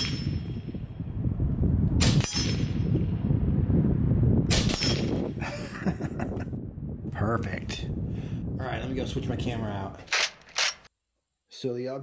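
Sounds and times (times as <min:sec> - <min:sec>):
air rifle shots: 0:10.1 - 0:10.9.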